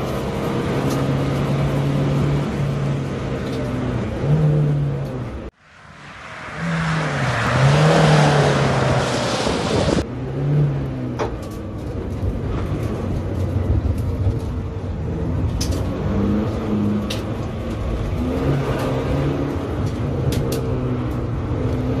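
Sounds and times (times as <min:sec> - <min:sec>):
road and tyre noise: 0:00.0 - 0:22.0
turbodiesel engine under load: 0:00.0 - 0:22.0.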